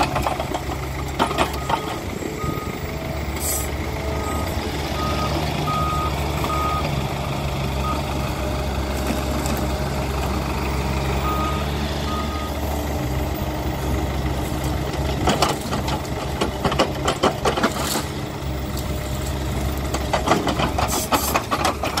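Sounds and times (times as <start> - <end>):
excavator diesel engine running: 0.0 - 22.0
electronic warning beeps: 4.0 - 6.9
grapple knocking and clattering wood: 19.9 - 22.0.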